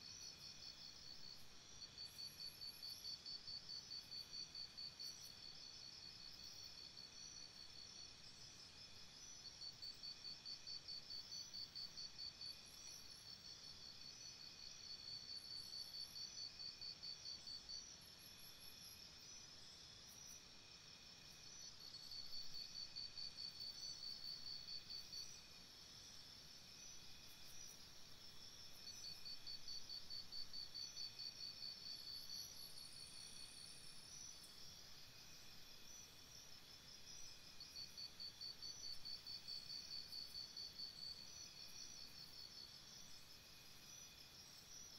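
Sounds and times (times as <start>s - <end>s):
crickets chirping faintly: 0.0s - 44.9s.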